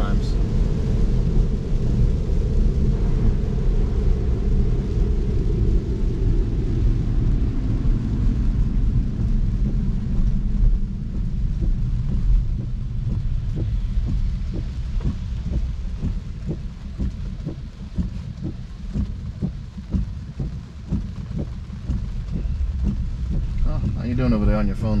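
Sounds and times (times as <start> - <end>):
tyres rumbling on wet road: 0.0 - 25.0
raindrops tapping on glass: 8.6 - 25.0.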